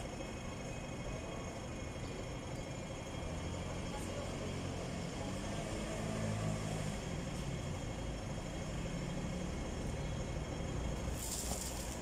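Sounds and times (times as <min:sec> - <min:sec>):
idling vehicle engines in traffic: 0:00.0 - 0:12.0.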